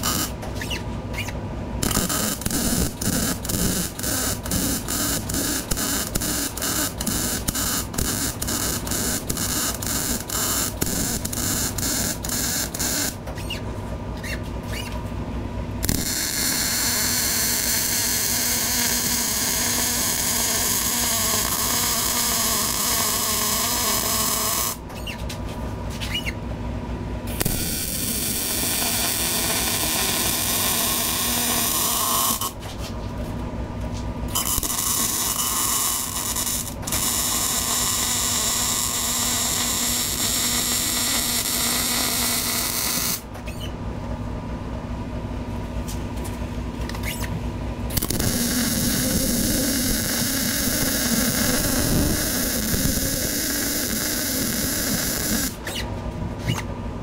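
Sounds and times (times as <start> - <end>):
welder arc crackling and hissing: 0.0 - 0.4, 1.8 - 13.2, 15.8 - 24.8, 27.3 - 32.6, 34.3 - 43.3, 47.9 - 55.8.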